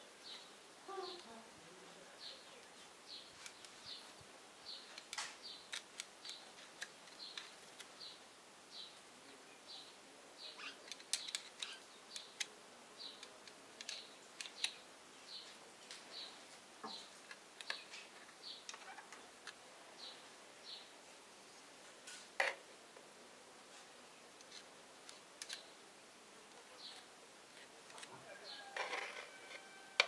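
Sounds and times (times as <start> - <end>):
small bird chirping: 9.7 - 13.3.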